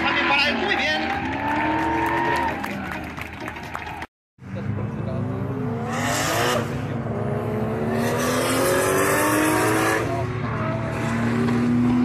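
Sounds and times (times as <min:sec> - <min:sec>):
car engine revving hard: 0:05.5 - 0:12.0.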